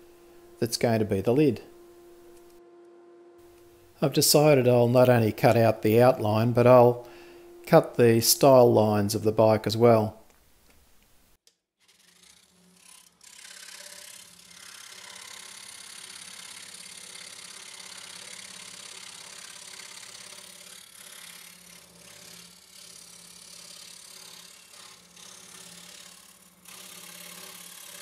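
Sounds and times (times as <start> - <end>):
scroll saw sawing wood: 11.8 - 28.0.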